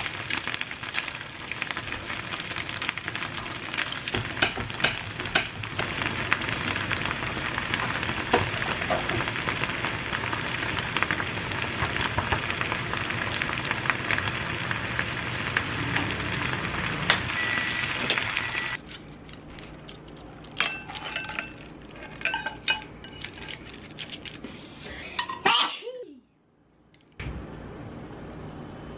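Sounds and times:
food bubbling and sizzling in pan: 0.0 - 18.8.

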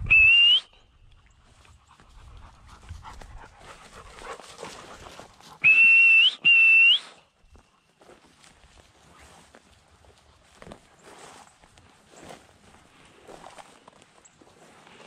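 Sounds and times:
dog whistle blasts: 0.0 - 0.8, 5.6 - 7.2
rustling and footsteps: 1.0 - 5.6, 7.4 - 15.0.

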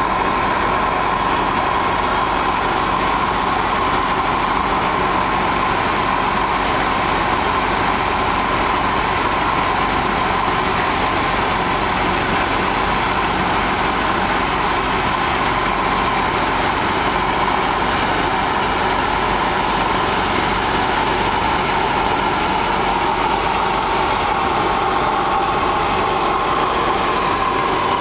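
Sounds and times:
light aircraft engine and propeller: 0.0 - 28.0
rushing air: 20.0 - 28.0.

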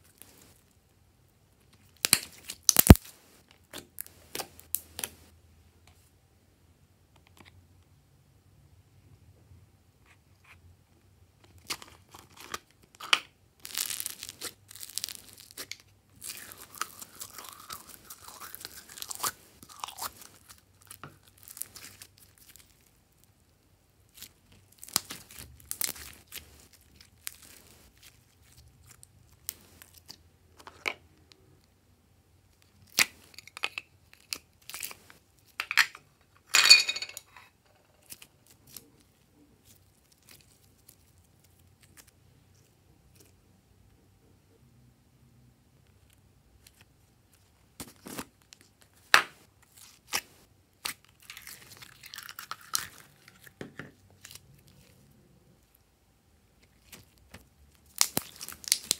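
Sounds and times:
slime clicking and crackling: 2.0 - 3.1, 13.6 - 22.9, 24.1 - 30.2, 56.6 - 58.9.

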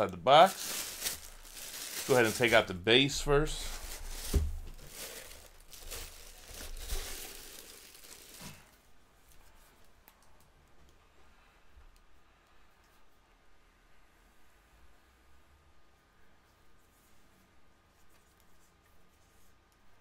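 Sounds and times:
packing material rustling: 0.0 - 8.8.

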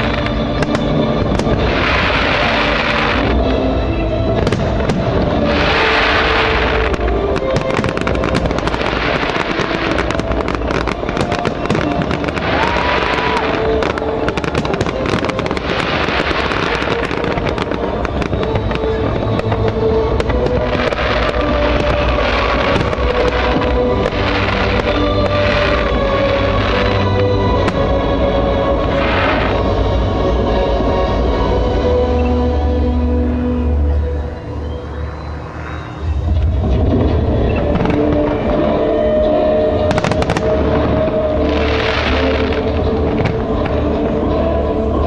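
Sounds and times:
fireworks hissing: 0.0 - 3.6, 4.4 - 28.1, 28.7 - 29.8
fireworks crackling and popping: 0.0 - 31.2, 35.2 - 45.0
music: 0.0 - 45.0.

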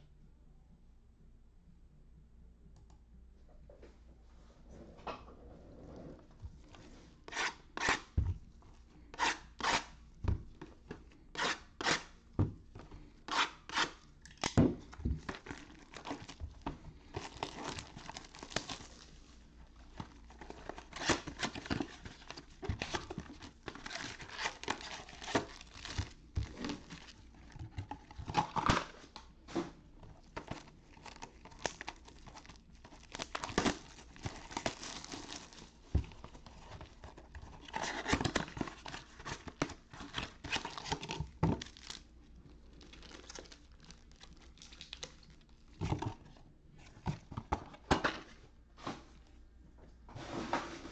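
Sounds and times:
packaging crinkling and rustling: 14.3 - 47.8
packaging ripping: 17.1 - 19.2, 20.3 - 27.2, 30.4 - 41.0.

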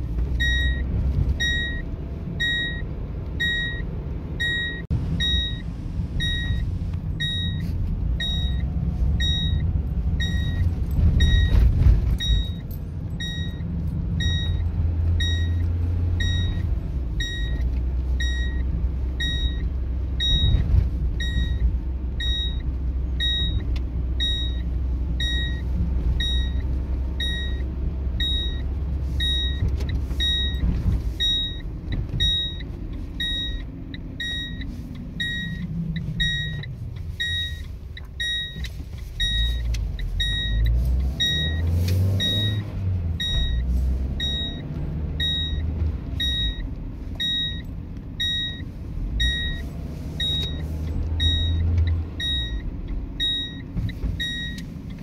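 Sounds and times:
car engine and tyres rumbling: 0.0 - 55.0
seatbelt warning beeps: 0.4 - 55.0.

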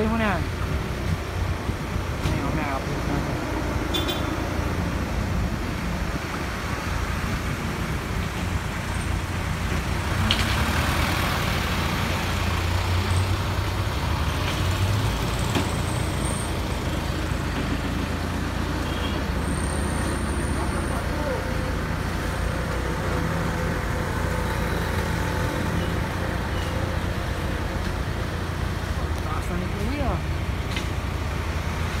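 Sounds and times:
truck engine rumbling: 0.0 - 32.0.

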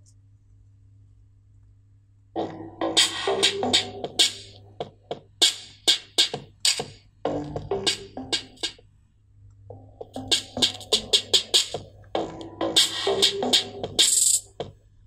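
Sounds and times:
steady low hum: 0.0 - 15.0
electronic dance music: 2.4 - 4.6, 5.4 - 8.8, 9.7 - 14.6.

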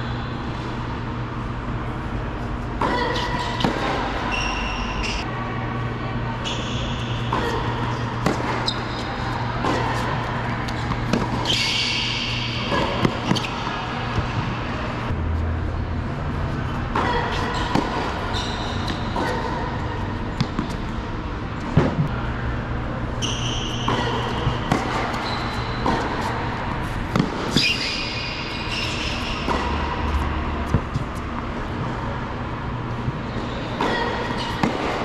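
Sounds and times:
steady low hum: 0.0 - 35.0
shoe squeaks on court: 23.2 - 26.1, 27.5 - 29.8
tennis ball hitting strings and bouncing: 25.8 - 26.3.

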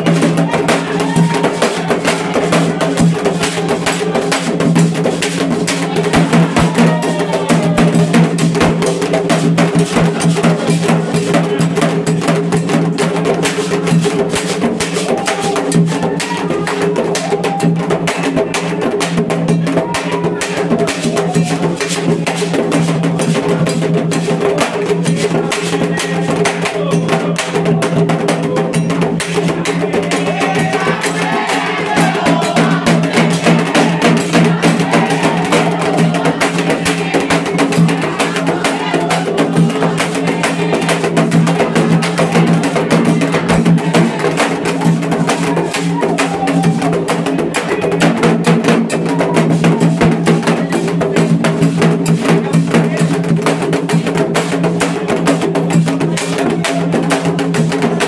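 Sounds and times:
voices singing: 0.0 - 8.8, 24.6 - 53.3
hand drums: 0.0 - 58.0.

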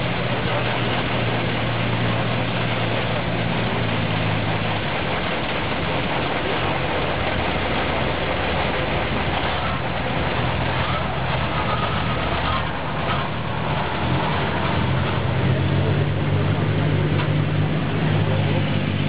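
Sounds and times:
truck diesel engine running: 0.0 - 19.0.

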